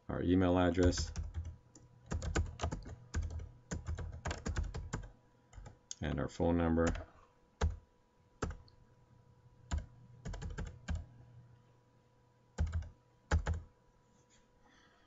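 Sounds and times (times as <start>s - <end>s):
computer keyboard typing: 0.8s - 5.8s, 6.8s - 7.8s, 8.4s - 8.7s, 9.7s - 11.1s, 12.6s - 13.7s.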